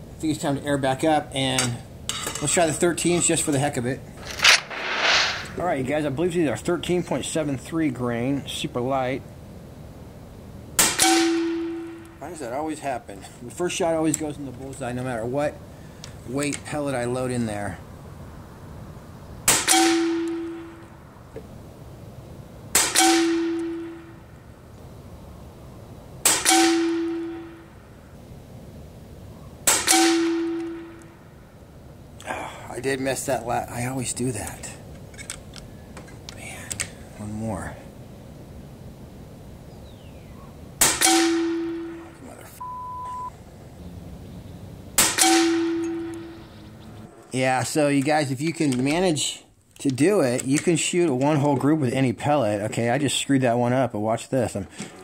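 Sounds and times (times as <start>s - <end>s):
air rifle shot: 4.2s - 5.6s
second sharp crack: 4.2s - 5.6s
short steady beep: 42.6s - 43.4s
ringing metallic clang: 45.1s - 46.4s.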